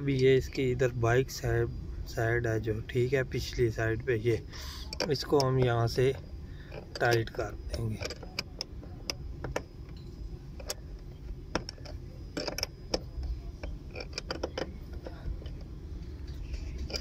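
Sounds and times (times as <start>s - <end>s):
spanner clicking on metal nut: 4.8s - 10.0s, 10.6s - 10.8s, 11.5s - 17.0s.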